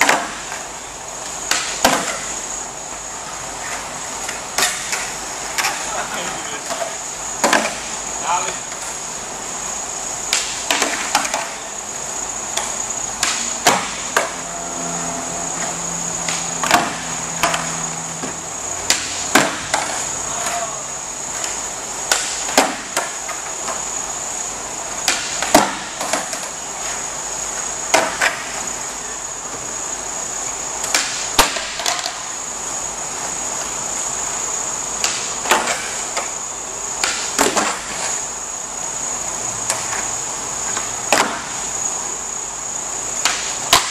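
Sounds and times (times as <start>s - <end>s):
high-pitched whine: 8.0s - 30.8s
skateboard decks clattering on concrete: 30.9s - 32.2s.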